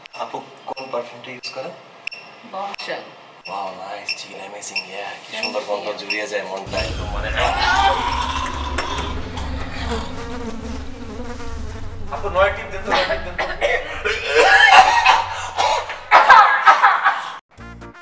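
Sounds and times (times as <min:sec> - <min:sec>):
fly-like buzzing: 0:07.9 - 0:16.0.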